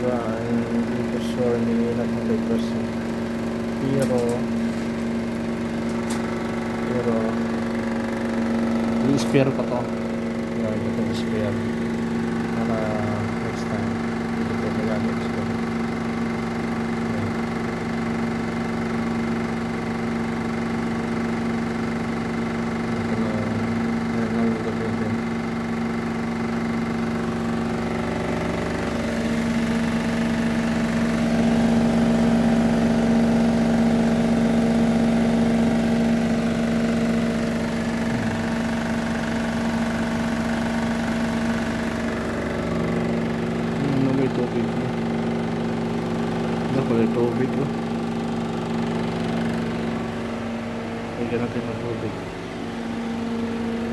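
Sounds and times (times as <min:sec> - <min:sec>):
vacuum pump motor hum: 0:00.0 - 0:53.9.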